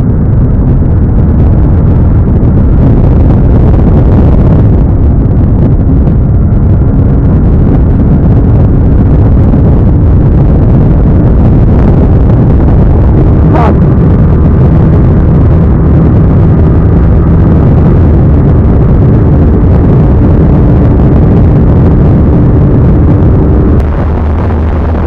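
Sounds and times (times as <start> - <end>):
rushing wind: 0.0 - 25.0
motorcycle engine at high revs: 13.0 - 25.0.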